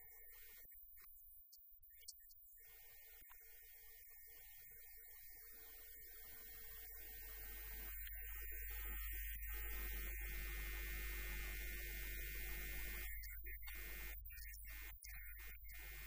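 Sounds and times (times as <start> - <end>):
electrical mains hum: 0.0 - 16.0
faint steady tones: 0.0 - 16.0.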